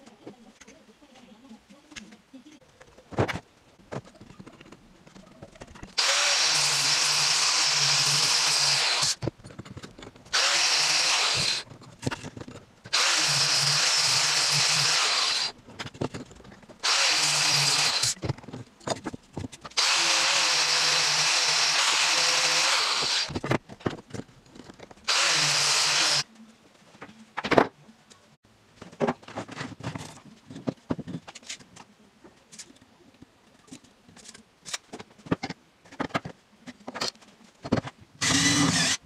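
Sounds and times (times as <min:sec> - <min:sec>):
angle grinder sanding wood: 0:06.0 - 0:09.2, 0:10.4 - 0:11.6, 0:12.9 - 0:15.5, 0:16.8 - 0:18.2, 0:19.8 - 0:23.3, 0:25.1 - 0:26.2.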